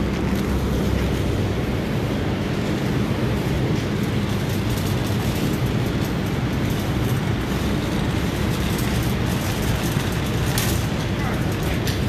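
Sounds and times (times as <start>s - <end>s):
refrigeration units blowing air: 0.0s - 12.0s.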